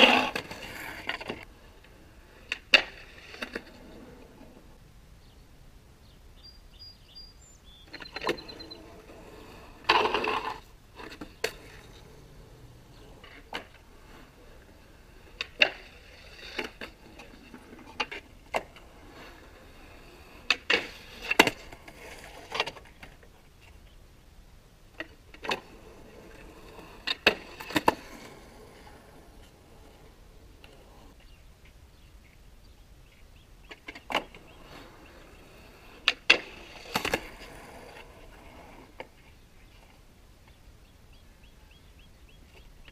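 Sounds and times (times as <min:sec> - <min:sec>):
skateboard clacking on concrete: 0:00.0 - 0:04.2, 0:07.9 - 0:23.4, 0:24.9 - 0:31.2, 0:33.7 - 0:39.2.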